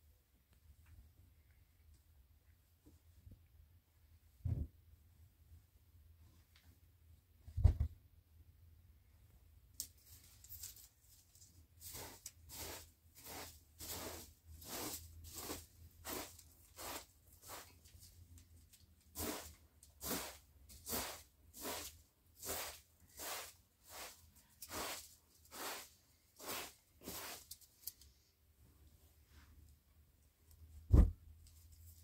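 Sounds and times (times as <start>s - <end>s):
broom sweeping a rug: 11.6s - 18.2s, 19.1s - 27.7s.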